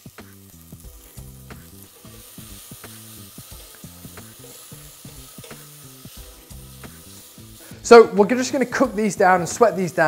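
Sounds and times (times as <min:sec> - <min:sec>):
onions sizzling in a saucepan: 0:00.0 - 0:10.0
soft background music: 0:00.0 - 0:10.0
spoon scraping a pan: 0:01.8 - 0:07.2.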